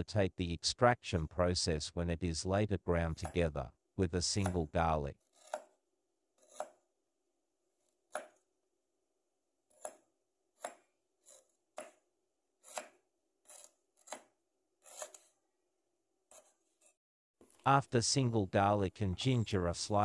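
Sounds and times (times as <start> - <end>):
knife slicing on wooden board: 5.2 - 5.7, 6.4 - 6.9, 9.7 - 12.0, 12.6 - 15.4, 16.3 - 17.0.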